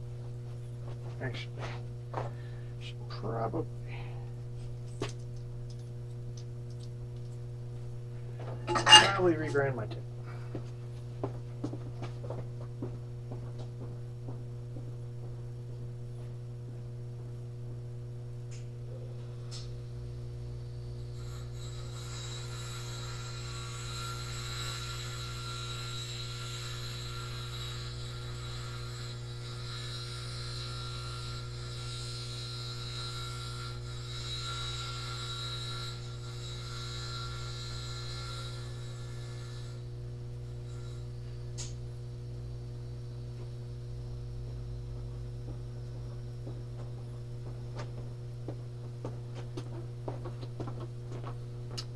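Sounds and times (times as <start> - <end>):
electrical hum: 0.0 - 51.9
grinder whining: 8.3 - 10.0, 21.1 - 41.7.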